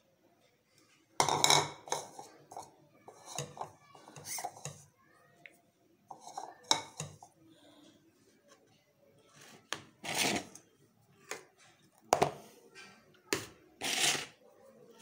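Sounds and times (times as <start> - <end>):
plastic bowls clattering: 1.2 - 4.8, 6.1 - 7.3, 9.4 - 10.6, 11.2 - 14.4.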